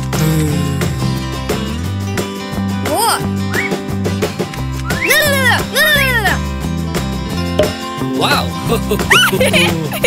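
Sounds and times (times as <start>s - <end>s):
cartoon background music: 2.8s - 6.8s, 7.6s - 10.0s
plucked guitar-like notes: 7.6s - 8.0s.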